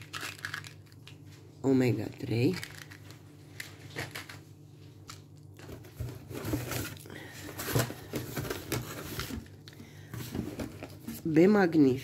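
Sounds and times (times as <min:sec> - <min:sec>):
paper packing rustling: 0:02.3 - 0:04.5, 0:05.1 - 0:11.3.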